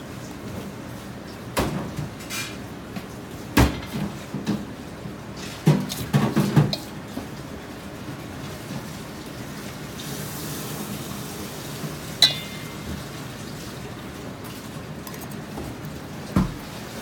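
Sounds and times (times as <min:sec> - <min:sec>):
metal canister clanking in bowl: 0:12.2 - 0:13.3.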